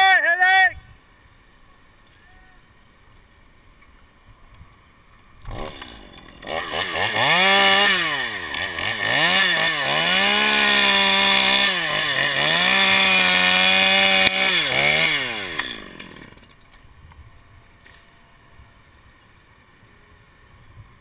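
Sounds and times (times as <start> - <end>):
chainsaw revving: 5.4 - 16.6.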